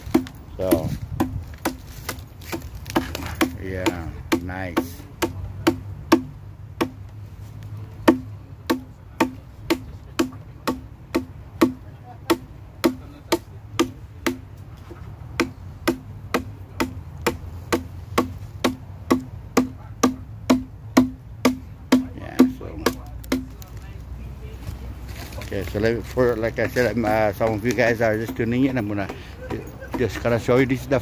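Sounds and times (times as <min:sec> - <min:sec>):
adze chopping wood: 0:00.0 - 0:07.1, 0:08.0 - 0:23.8.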